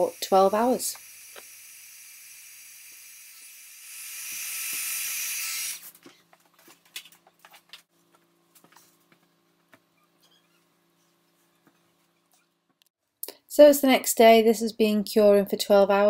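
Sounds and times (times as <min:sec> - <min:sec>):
heat gun blowing air: 0:00.0 - 0:05.9.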